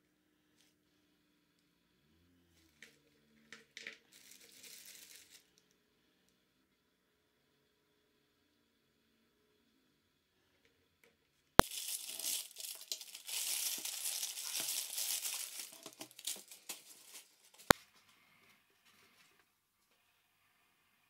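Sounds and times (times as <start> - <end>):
paper wrapper crinkling and tearing: 4.1 - 5.5, 11.6 - 17.7.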